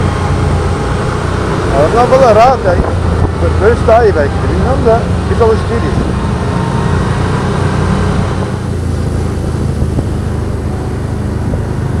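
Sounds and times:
atv engine running: 0:00.0 - 0:12.0
wind noise on microphone: 0:02.6 - 0:03.6, 0:05.8 - 0:12.0.

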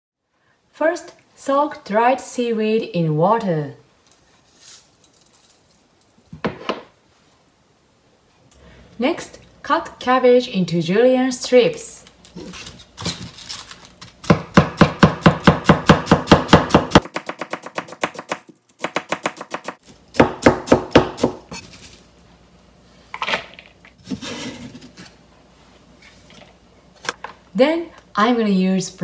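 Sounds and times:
knife chopping on cutting board: 0:14.2 - 0:21.5.

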